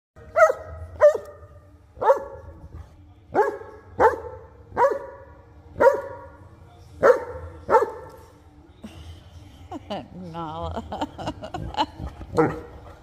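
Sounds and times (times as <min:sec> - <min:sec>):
dog barking: 0:00.3 - 0:02.5, 0:03.3 - 0:06.4, 0:07.0 - 0:08.1.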